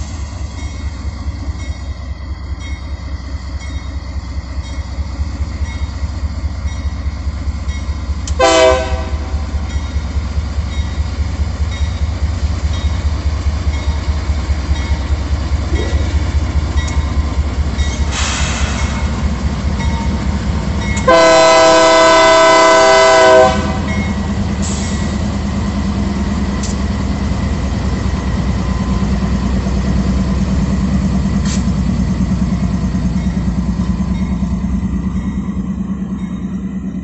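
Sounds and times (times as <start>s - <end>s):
locomotive engine throbbing: 0.0s - 37.0s
locomotive air horn: 8.4s - 9.5s, 21.0s - 23.9s.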